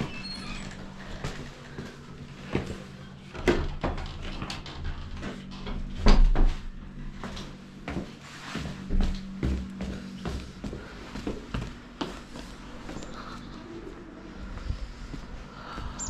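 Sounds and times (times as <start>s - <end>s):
faint low hum: 0.0s - 16.0s
footsteps on stairs: 1.0s - 3.0s, 7.2s - 13.2s, 14.5s - 16.0s.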